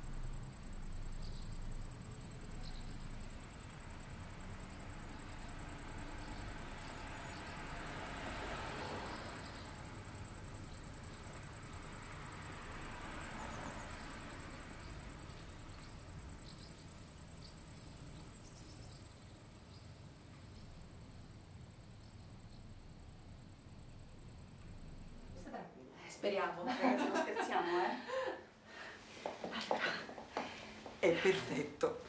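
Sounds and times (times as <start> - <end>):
insects chirring: 0.0 - 25.6
background noise swells: 0.0 - 32.0.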